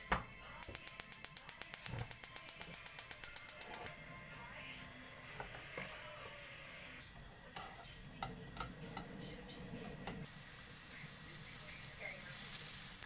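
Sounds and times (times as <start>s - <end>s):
onion sizzling in oil: 10.2s - 13.0s.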